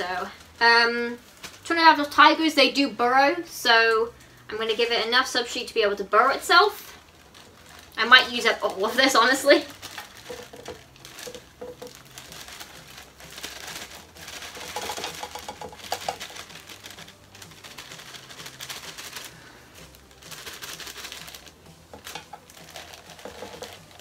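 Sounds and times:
plastic bag crinkling: 5.9s - 24.0s
substrate pouring into plastic box: 9.8s - 19.4s, 22.0s - 24.0s.

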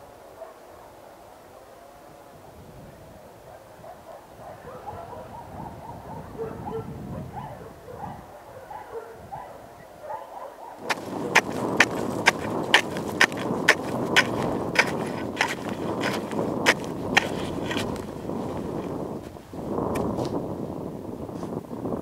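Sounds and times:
ice chisel chopping ice: 10.8s - 19.0s
rasp of ice chips: 10.8s - 19.0s.

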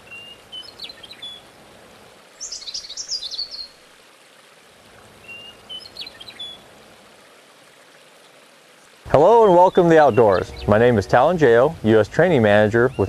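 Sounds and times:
birds singing: 0.0s - 1.5s, 2.4s - 3.8s, 5.2s - 6.7s, 9.1s - 13.0s
rushing water: 0.0s - 13.0s
whistled bird phrase: 9.2s - 11.3s
high bird twittering: 9.3s - 13.0s.

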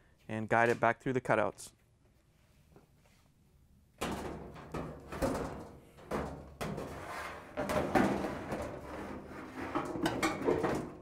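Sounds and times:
metal drum scraping cabinet: 6.6s - 11.0s.

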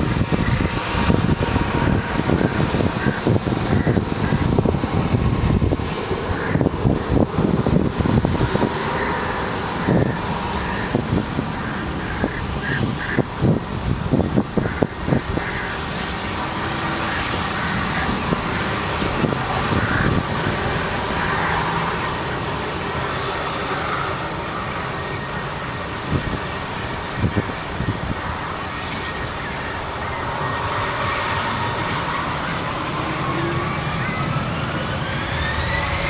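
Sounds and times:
jet engines rushing and whining: 0.0s - 36.0s.

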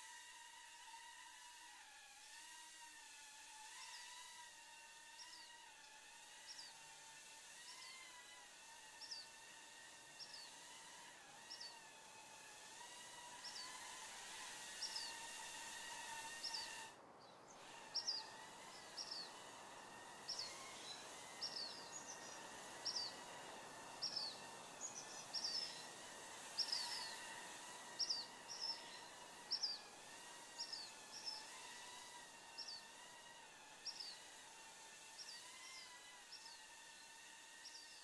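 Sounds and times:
faint wavering hum: 6.3s - 38.0s
small bird chirping: 11.5s - 11.8s, 14.7s - 15.3s, 16.3s - 19.4s, 20.2s - 23.2s, 24.0s - 29.8s, 30.6s - 31.9s, 32.6s - 32.9s, 33.8s - 34.2s.

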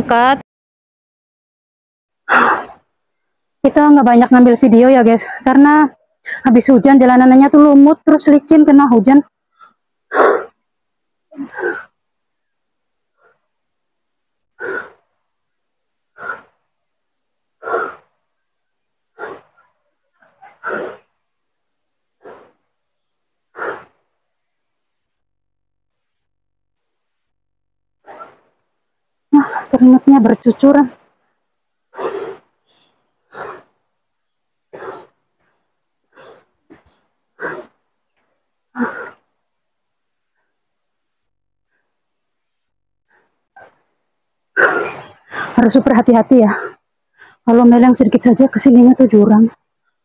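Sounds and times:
person breathing hard: 11.3s - 12.0s, 14.6s - 15.1s, 16.1s - 16.6s, 23.5s - 24.0s, 31.9s - 33.8s, 38.7s - 39.2s, 44.6s - 45.6s, 46.5s - 47.4s
woman breathing hard: 38.7s - 39.2s, 44.6s - 45.6s, 46.5s - 47.4s.

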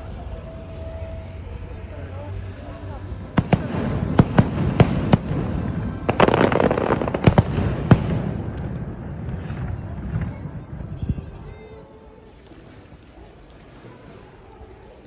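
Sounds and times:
fireworks crackling: 0.0s - 15.0s
fireworks bangs: 3.0s - 11.4s.

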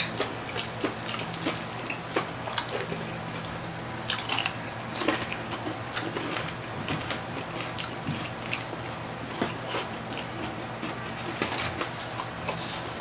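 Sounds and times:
meat being torn by hand: 0.0s - 8.7s
fried skin crackling while chewed: 0.0s - 12.9s.

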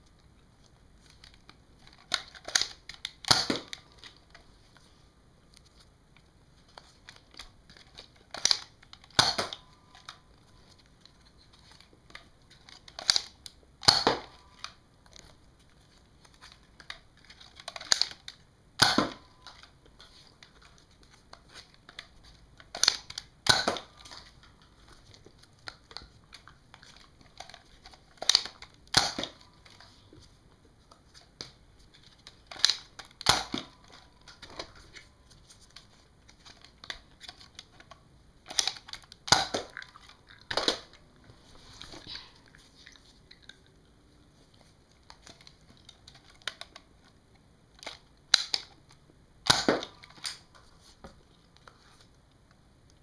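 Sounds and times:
toy dart blaster firing: 3.2s - 3.7s, 9.2s - 9.6s, 13.8s - 14.4s, 18.8s - 19.2s, 23.4s - 23.9s, 28.9s - 29.4s, 39.3s - 39.7s, 49.4s - 50.0s
handling and rustling: 19.2s - 47.2s.

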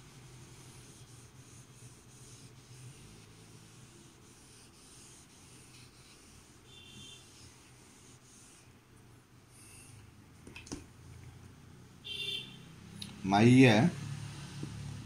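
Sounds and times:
duster rubbing on whiteboard: 0.0s - 8.8s.

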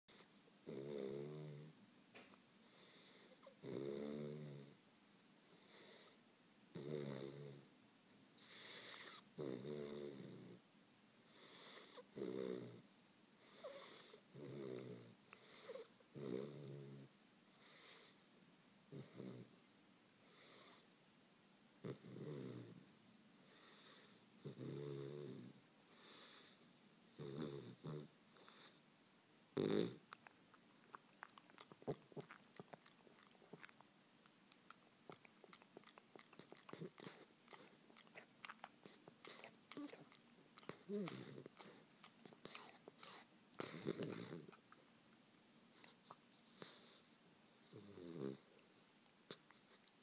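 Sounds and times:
puppy snoring: 0.1s - 1.8s, 2.7s - 4.8s, 5.5s - 7.7s, 8.4s - 10.6s, 11.3s - 18.2s, 18.9s - 19.7s, 21.8s - 22.9s, 23.5s - 28.8s, 29.6s - 44.8s, 45.8s - 48.6s
quiet breathing: 0.1s - 4.8s, 5.4s - 6.3s, 8.3s - 10.6s, 11.2s - 21.0s, 21.8s - 29.0s, 34.6s - 44.8s, 45.6s - 50.0s.

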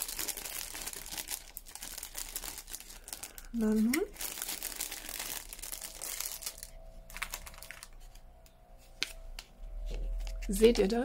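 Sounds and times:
plastic bag crinkling: 0.0s - 8.3s.

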